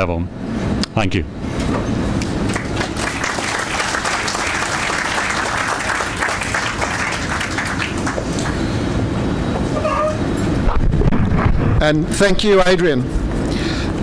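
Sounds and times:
audience applause: 2.4 - 8.8.

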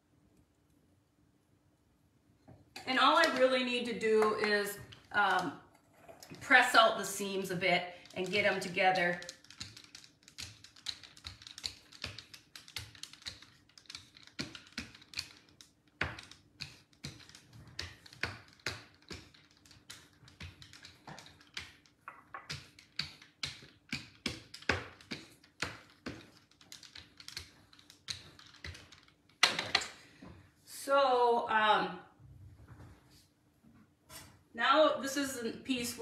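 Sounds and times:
pastry roller clicking and tapping: 8.0 - 29.9.

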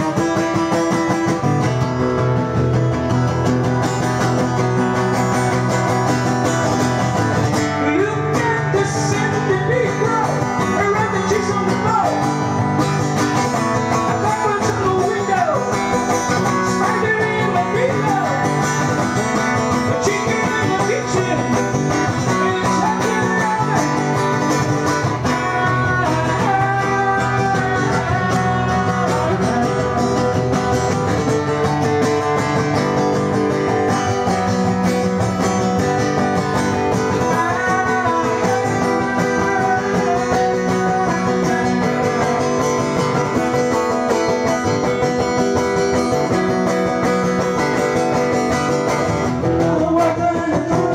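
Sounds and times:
acoustic guitar strummed and picked: 0.0 - 50.9.

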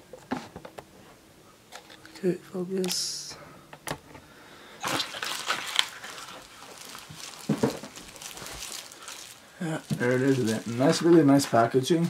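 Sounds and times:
plastic bag crinkling: 4.8 - 11.8.

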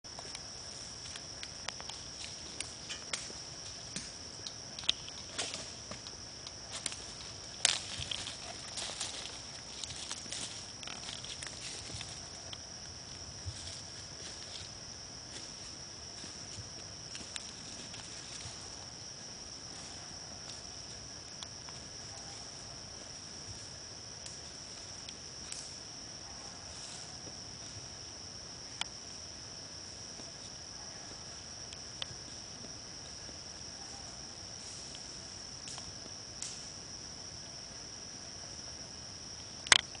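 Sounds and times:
night insects trilling: 0.1 - 40.0
faint clicks: 39.6 - 40.0.

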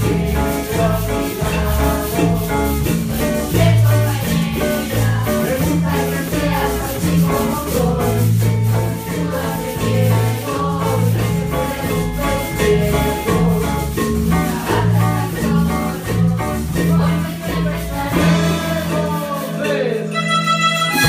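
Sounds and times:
repeating bass line: 0.0 - 19.4
drum kit and hand drums: 0.0 - 21.0
melodicas: 0.0 - 21.0
people singing into microphones: 0.0 - 21.0.

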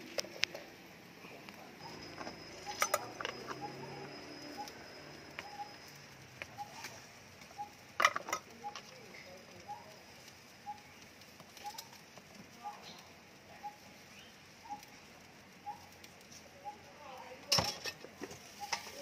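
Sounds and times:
spoon clinking on containers: 2.2 - 3.7.

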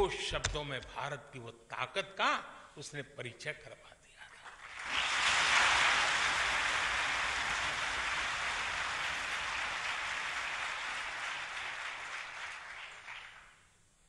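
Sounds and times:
audience applauding: 4.5 - 13.7.

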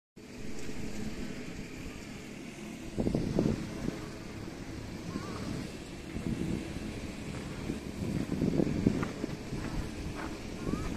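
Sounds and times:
wind buffeting microphone: 2.8 - 10.9.

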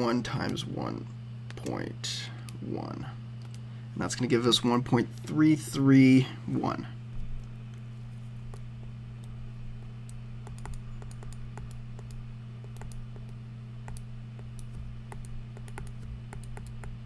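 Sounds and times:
low hum: 0.0 - 17.0
stylus tapping on tablet screen: 10.4 - 17.0.

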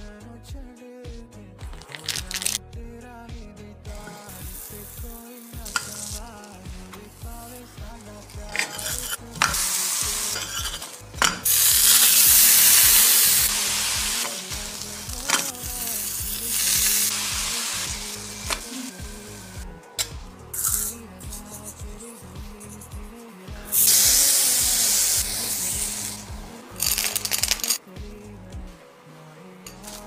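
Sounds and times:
bread sizzling in butter: 4.0 - 6.6, 7.4 - 19.6, 23.7 - 27.8.

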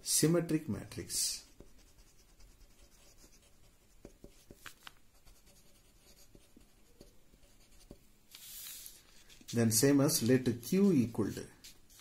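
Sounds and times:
marker pen scratching on paper: 1.4 - 12.0.

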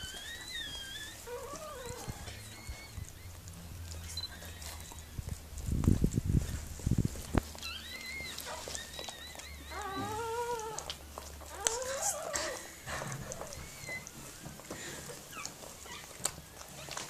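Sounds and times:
puppies squeaking and crying: 0.0 - 5.8, 6.4 - 17.0
dog licking with wet clicks: 7.2 - 17.0.

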